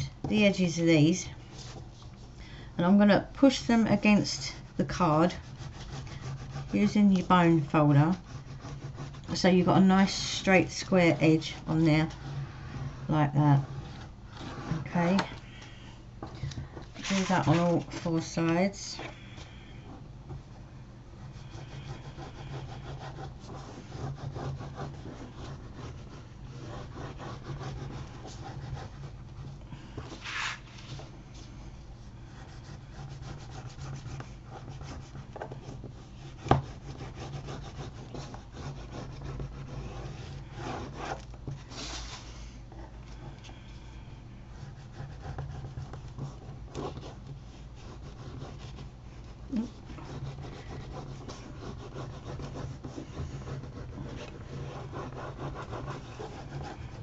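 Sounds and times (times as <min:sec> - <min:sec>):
low steady hum: 0:00.0 - 0:57.0
bone folder scraping paper: 0:17.0 - 0:19.7, 0:21.2 - 0:31.1.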